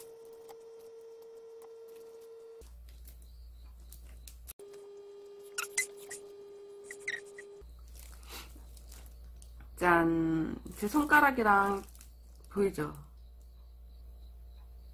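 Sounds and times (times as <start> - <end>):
soft cracks and crackles: 7.8 - 9.7, 10.7 - 13.5.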